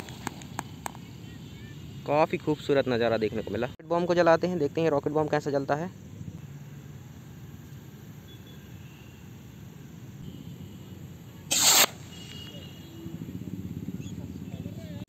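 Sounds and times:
firework bang: 11.5 - 12.6.

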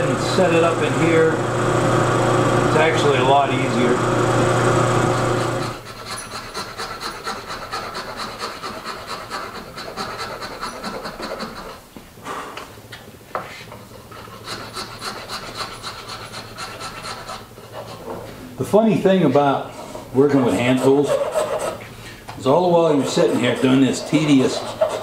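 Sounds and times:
mill-drill motor humming: 0.0 - 5.8
hand tool rasping wood: 0.0 - 11.8, 13.9 - 18.1, 20.3 - 21.9, 22.8 - 25.0.

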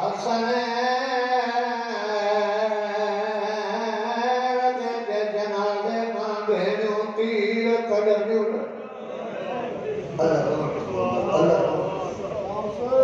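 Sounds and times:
man chanting into a microphone: 0.0 - 8.9, 10.0 - 13.0.

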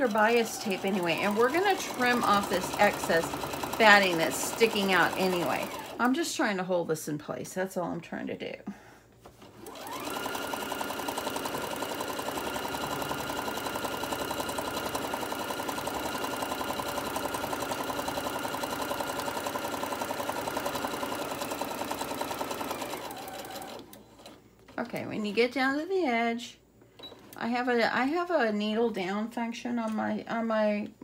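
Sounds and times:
sewing machine stitching: 0.0 - 6.0, 9.4 - 25.3.

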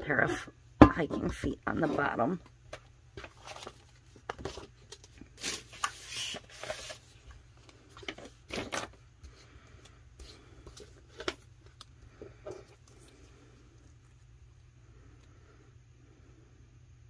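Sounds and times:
decal sheet rustling and sliding: 5.4 - 7.3.

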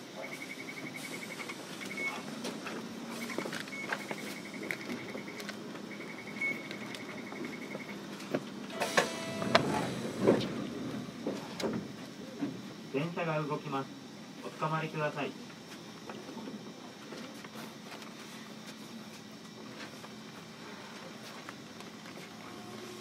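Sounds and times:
rapidly pulsing beep: 0.2 - 2.2, 3.2 - 8.0
short buzzer tone: 8.7 - 10.2.

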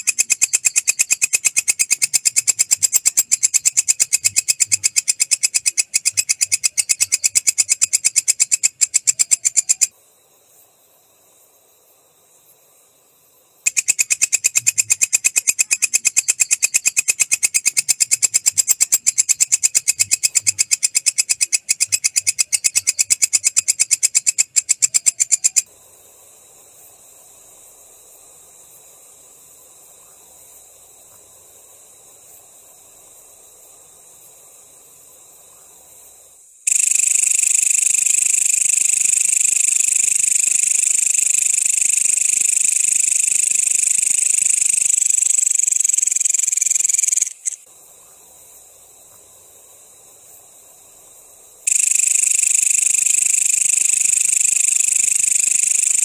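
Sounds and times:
katydid calling: 0.0 - 9.9, 13.6 - 25.7, 36.7 - 47.7, 51.6 - 56.0
faint hiss: 0.0 - 56.0.

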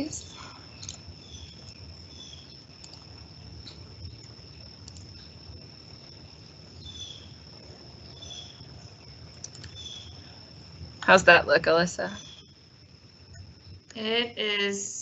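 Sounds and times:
cricket trilling: 0.0 - 15.0
low background rumble: 0.0 - 15.0
faint clicks: 0.8 - 1.8, 2.8 - 5.3, 9.3 - 9.8.

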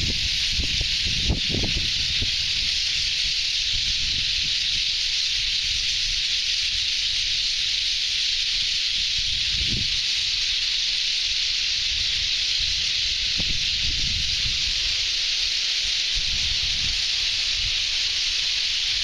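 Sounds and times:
wind buffeting microphone: 0.0 - 6.3, 8.9 - 10.3, 11.7 - 15.2, 16.0 - 19.0
large flock of birds calling: 0.0 - 19.0.

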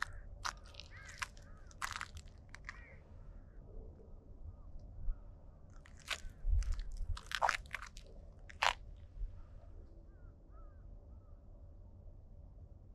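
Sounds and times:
footsteps crunching on dry trail: 0.0 - 2.9, 5.9 - 8.9.

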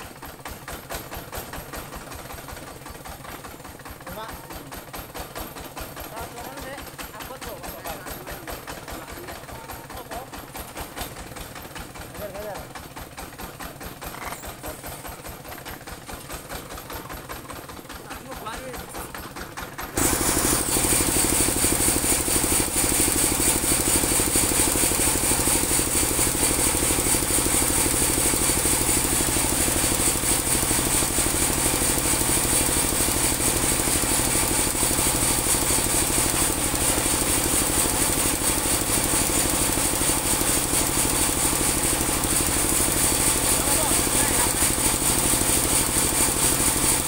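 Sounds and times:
sawmill engine humming: 6.8 - 47.0.

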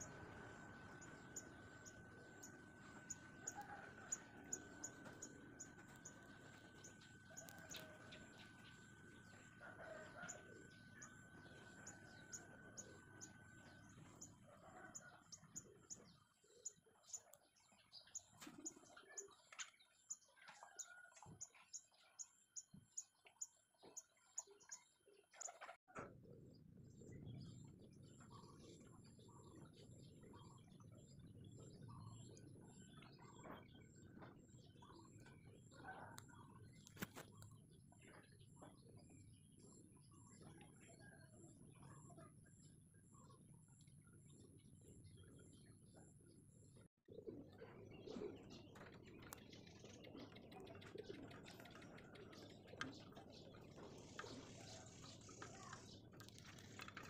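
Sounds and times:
birds chirping: 47.1 - 57.0.

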